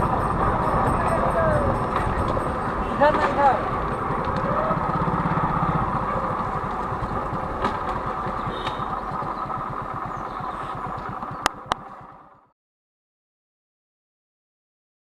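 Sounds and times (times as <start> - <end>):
wind and road noise: 0.0 - 12.4
motorcycle engine running: 0.0 - 12.5.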